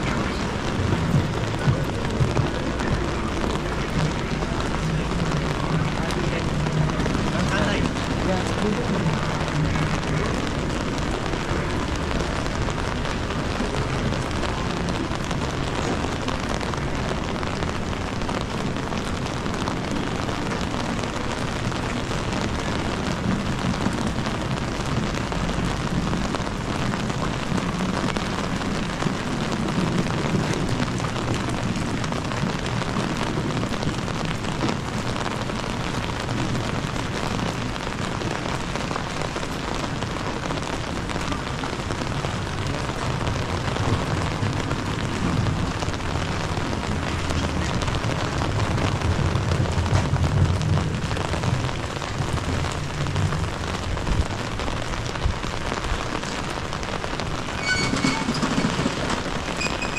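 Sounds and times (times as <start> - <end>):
low city rumble: 0.0 - 59.9
rain falling on street: 0.0 - 59.9.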